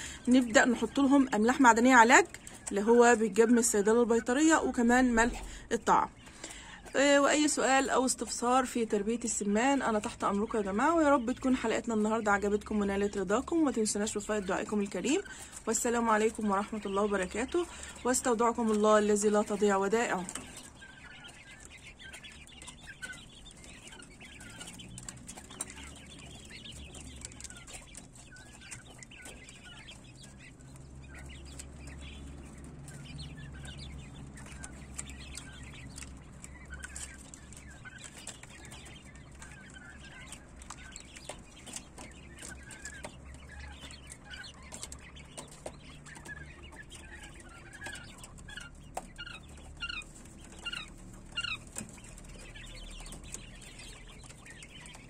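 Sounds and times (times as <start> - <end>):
quail chicks peeping: 0.0 - 55.0.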